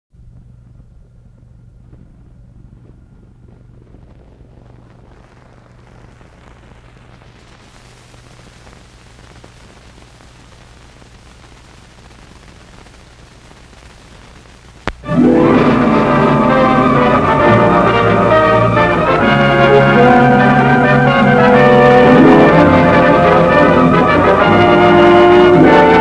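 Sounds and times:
low hum: 0:00.1 - 0:07.2
film hiss: 0:00.2 - 0:26.0
fine crackle: 0:00.4 - 0:15.1.

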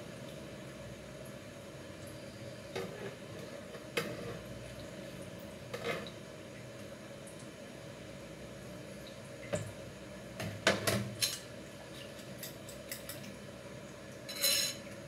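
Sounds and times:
background hum: 0:00.0 - 0:15.0
metal utensil clinking glass bowl: 0:14.3 - 0:14.8.

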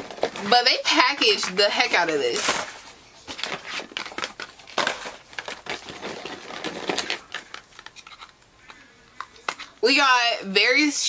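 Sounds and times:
packing material crinkling: 0:00.0 - 0:08.8.

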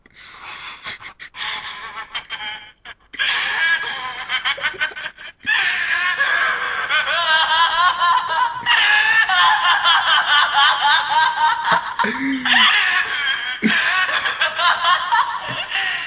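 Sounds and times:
man cackling: 0:11.6 - 0:14.3.

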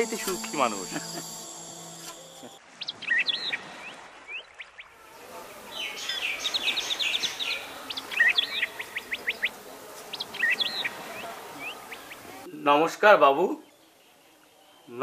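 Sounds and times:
small birds chirping: 0:02.7 - 0:05.0, 0:05.7 - 0:12.5.

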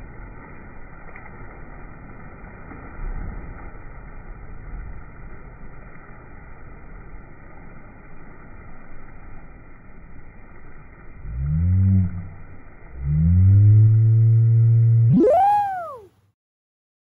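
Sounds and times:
muffled water splashing: 0:00.0 - 0:16.1
voice slowed into deep moan: 0:11.2 - 0:16.1.

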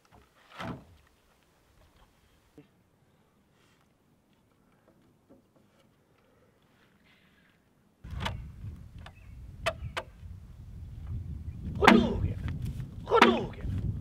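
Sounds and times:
wind rumble on microphone: 0:08.0 - 0:14.0
axe striking log: 0:11.8 - 0:12.3, 0:13.1 - 0:13.6.

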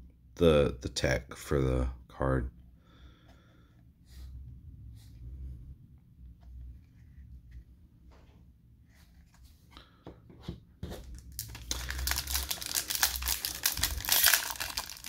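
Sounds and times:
foil wrapper crinkling: 0:11.1 - 0:15.0.

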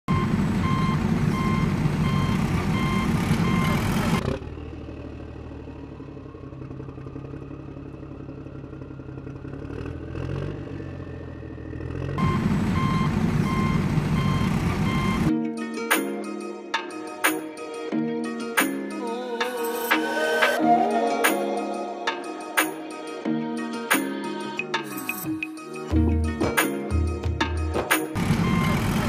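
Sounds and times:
reversing beeper: 0:00.1 - 0:04.2, 0:10.7 - 0:15.3, 0:28.2 - 0:29.0
heavy vehicle engine: 0:00.1 - 0:15.3, 0:27.2 - 0:29.0
rising engine whine: 0:00.1 - 0:15.4, 0:18.9 - 0:26.3, 0:28.2 - 0:29.0.

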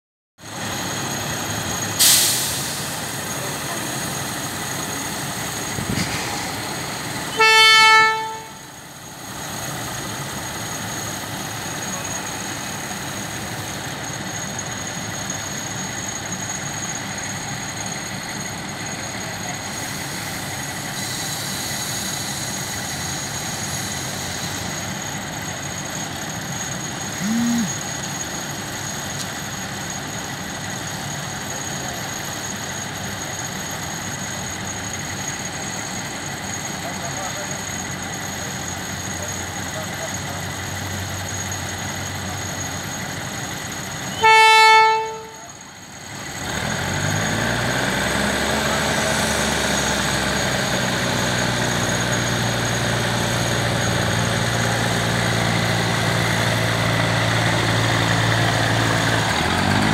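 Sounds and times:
diesel railcar rumbling: 0:00.4 - 0:59.9
low toot: 0:07.3 - 0:08.8, 0:27.2 - 0:27.8, 0:44.1 - 0:45.6
train horn blast: 0:07.3 - 0:08.8, 0:44.1 - 0:45.6
sharp burst of noise: 0:27.2 - 0:27.8.

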